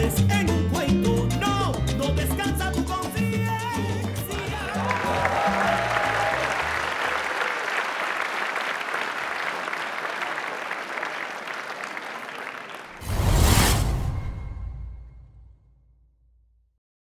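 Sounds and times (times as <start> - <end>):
salsa music: 0.0 - 7.2
audience applause: 4.2 - 13.1.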